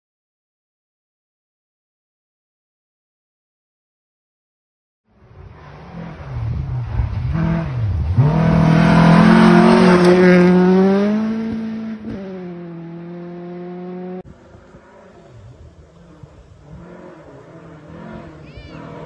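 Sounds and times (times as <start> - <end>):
rally car engine passing: 5.1 - 19.0.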